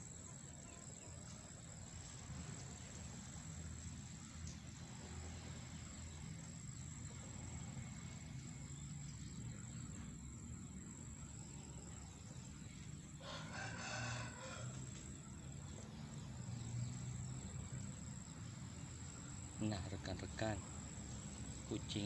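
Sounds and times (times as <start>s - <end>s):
crickets chirring: 0.0s - 22.0s
rooster crowing: 13.2s - 15.2s.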